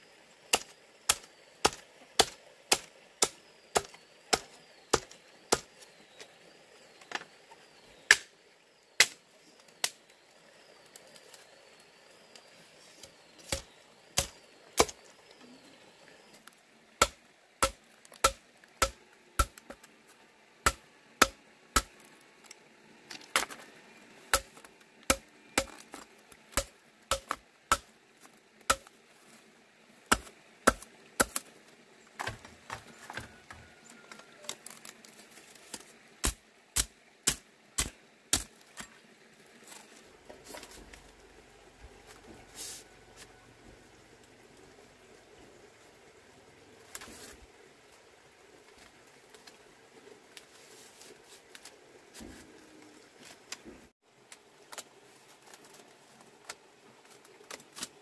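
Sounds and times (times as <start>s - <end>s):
machete chopping bamboo: 0.5s - 5.8s, 8.1s - 8.3s, 9.0s - 9.2s, 13.4s - 15.0s, 17.0s - 19.8s, 20.6s - 22.0s, 24.3s - 27.9s, 28.7s - 28.9s, 30.1s - 31.5s, 36.2s - 38.5s.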